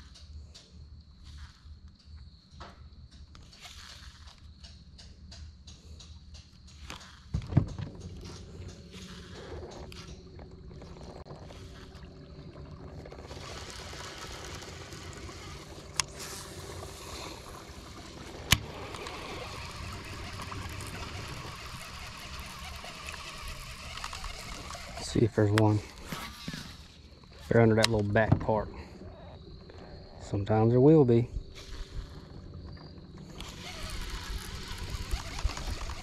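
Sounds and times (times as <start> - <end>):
steady low hum: 0.0 - 36.0
water lapping against hull: 8.1 - 26.1.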